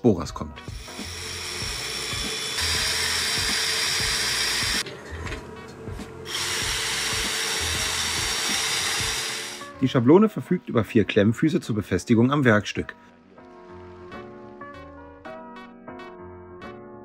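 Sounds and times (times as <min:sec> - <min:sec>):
cordless drill running: 0:00.7 - 0:04.8, 0:06.2 - 0:09.7.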